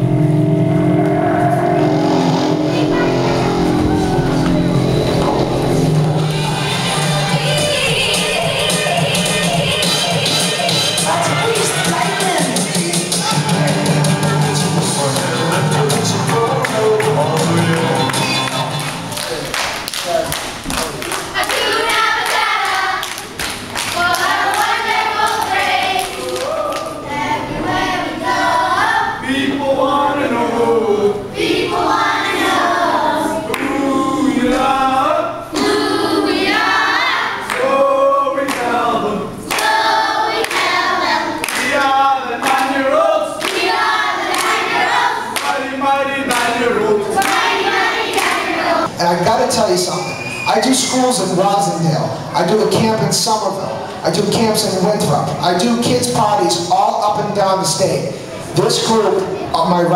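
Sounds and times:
children singing together: 0.0s - 18.6s, 21.2s - 48.9s
hand claps: 15.9s - 26.9s, 39.5s - 39.8s, 41.4s - 41.8s, 42.4s - 42.8s, 43.4s - 43.6s, 45.4s - 45.6s, 46.3s - 46.5s.

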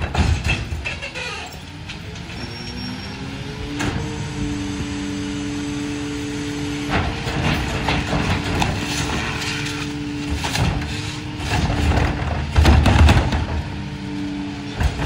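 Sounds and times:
heavy bangs of trash cart: 0.0s - 1.3s, 6.8s - 13.8s
trash and cart clattering: 0.0s - 2.4s, 6.8s - 13.9s, 14.7s - 15.0s
garbage truck engine running: 0.0s - 15.0s.

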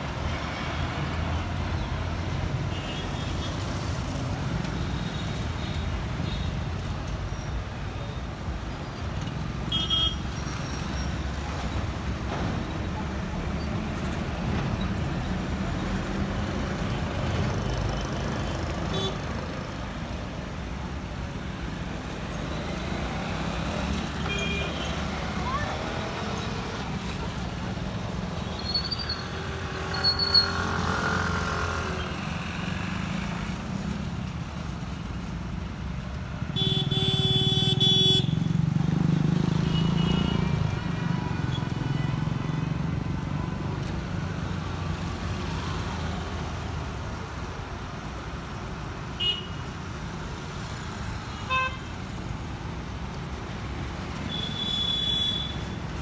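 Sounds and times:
traffic rumble: 0.0s - 56.0s
loud vehicle horn: 36.6s - 38.5s, 54.3s - 55.6s.

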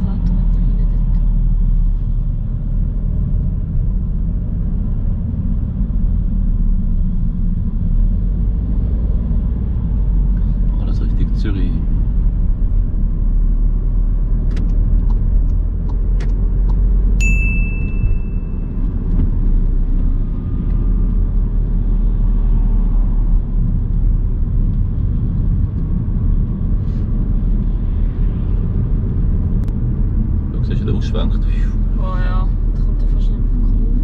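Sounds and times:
road and engine rumble: 0.0s - 34.0s
high beep: 17.2s - 18.8s.

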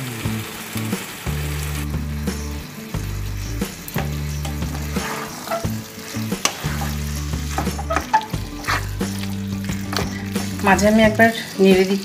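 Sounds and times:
vegetables sizzling in a pan: 0.0s - 12.0s
spatula scraping pan: 4.2s - 11.2s.

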